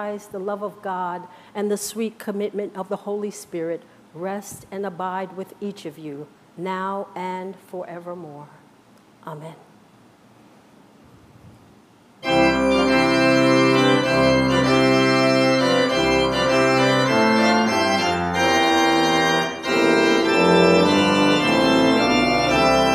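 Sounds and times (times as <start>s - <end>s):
church organ chords: 12.2s - 22.9s.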